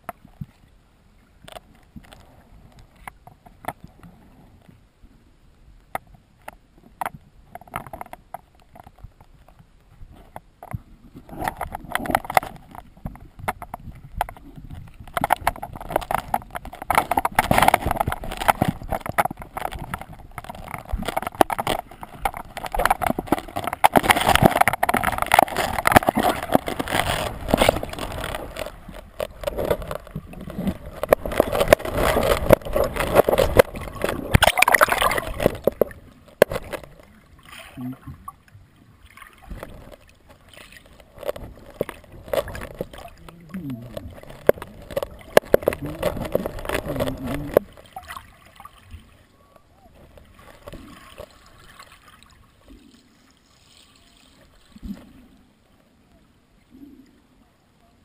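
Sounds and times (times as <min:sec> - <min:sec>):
rushing water: 0:00.0 - 0:58.0
underwater clicks: 0:01.4 - 0:04.2, 0:05.8 - 0:38.5, 0:39.1 - 0:52.8
knocks and clunks on rock: 0:10.3 - 0:36.9, 0:41.2 - 0:47.7.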